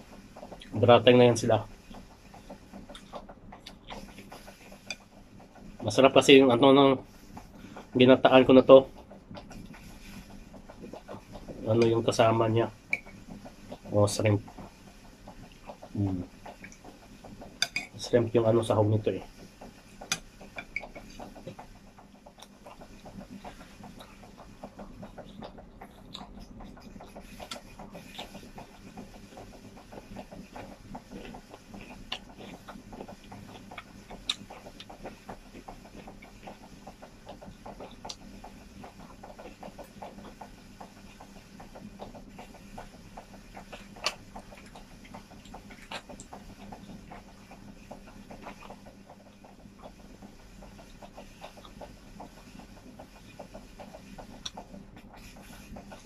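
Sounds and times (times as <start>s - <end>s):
fingers working food on a plate: 0.0s - 56.0s
chewing and mouth smacking: 2.8s - 5.1s, 20.0s - 42.9s, 43.6s - 53.4s.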